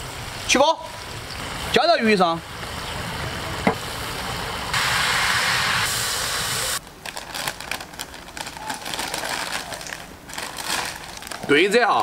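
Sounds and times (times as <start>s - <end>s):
hot oil sizzling: 0.0s - 6.8s
stiff paper crinkling: 6.8s - 12.0s.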